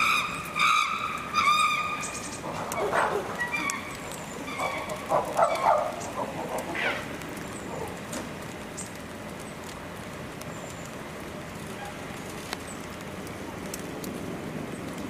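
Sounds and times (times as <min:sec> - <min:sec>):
chimpanzees calling: 0:00.0 - 0:08.1.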